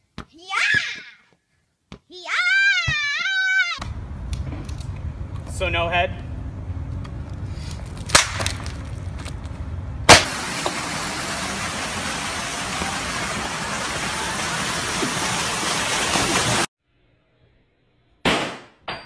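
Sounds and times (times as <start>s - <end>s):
street traffic rumble: 3.8s - 16.7s
rushing hiss: 10.1s - 16.7s.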